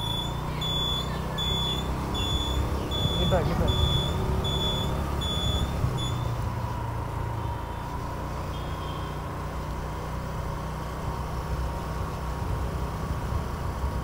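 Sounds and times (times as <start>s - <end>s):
short faint beeps: 0.0s - 6.4s
vehicle engine and road rumble: 0.0s - 14.0s.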